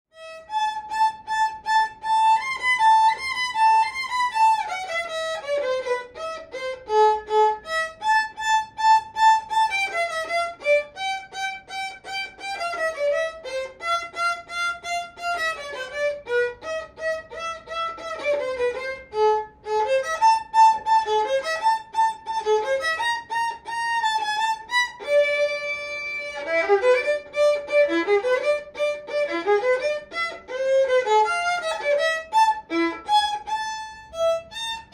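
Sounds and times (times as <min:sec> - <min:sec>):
violin melody: 0:00.1 - 0:34.9.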